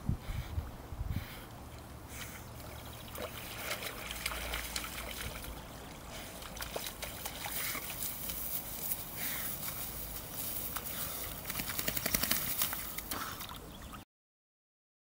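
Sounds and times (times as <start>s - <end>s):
water splashing and trickling: 1.9s - 14.0s
reeds crackling: 3.5s - 13.3s.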